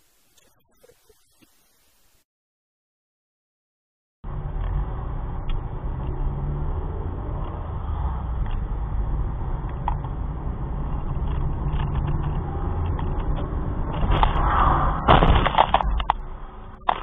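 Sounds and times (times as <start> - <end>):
car engine and road noise: 4.2 - 17.0
loud clattering burst: 14.0 - 16.1.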